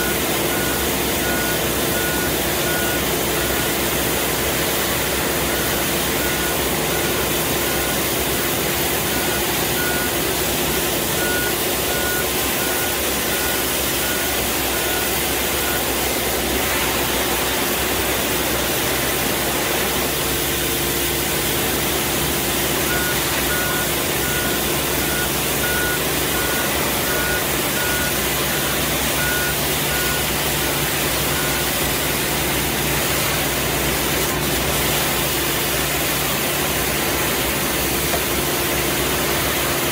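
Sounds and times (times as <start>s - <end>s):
street sweeper running: 0.0s - 39.9s
warning beeper beeping: 22.9s - 32.2s.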